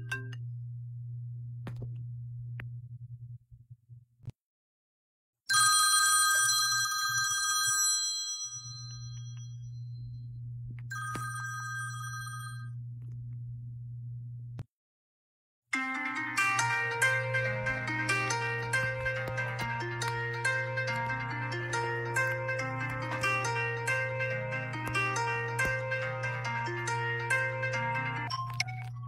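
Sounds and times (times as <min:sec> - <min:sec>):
steady low hum: 0:00.0 - 0:04.1, 0:09.2 - 0:10.9, 0:12.6 - 0:14.6
phone alarm ringtone chiming: 0:10.9 - 0:12.7.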